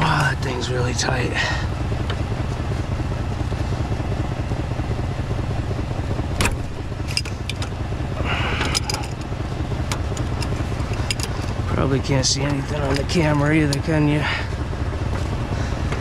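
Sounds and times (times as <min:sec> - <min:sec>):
truck engine idling: 0:00.0 - 0:16.0
wrench scraping: 0:08.6 - 0:09.3, 0:10.1 - 0:11.6.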